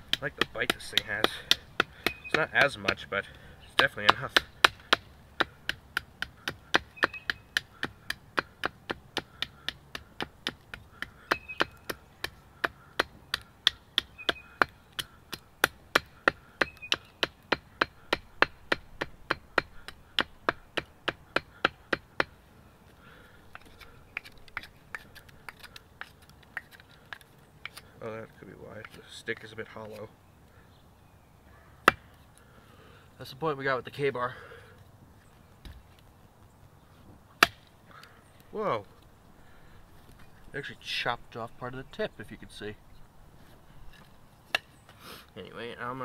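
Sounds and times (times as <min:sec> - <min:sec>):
knife chopping wood: 0:00.0 - 0:03.1, 0:03.8 - 0:22.4, 0:23.5 - 0:27.9, 0:31.8 - 0:32.1, 0:37.4 - 0:37.7, 0:44.0 - 0:44.7.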